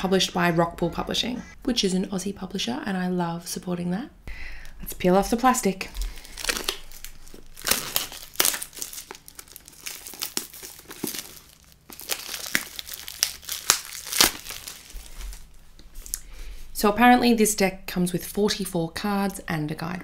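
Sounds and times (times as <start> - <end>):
plastic shrink-wrap crinkling: 4.9 - 16.2.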